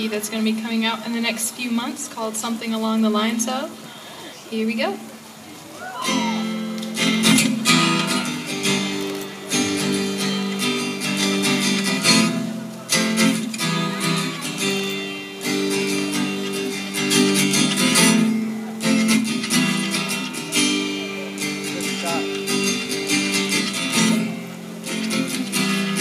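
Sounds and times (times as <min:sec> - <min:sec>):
acoustic guitar strumming: 0:05.9 - 0:26.0.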